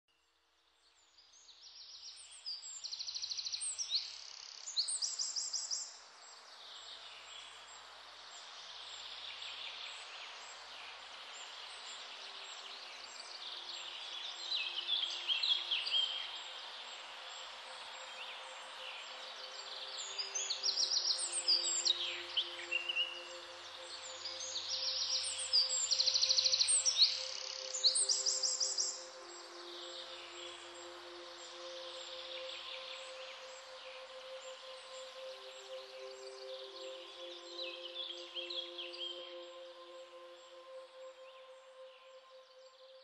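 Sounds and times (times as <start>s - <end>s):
background hiss: 0.1s - 43.0s
birds singing and chirping: 17.8s - 42.2s.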